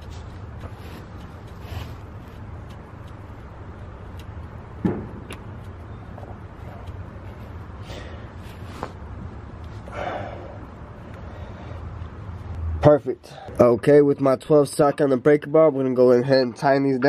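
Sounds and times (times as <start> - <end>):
steady low hum: 0.0 - 13.6.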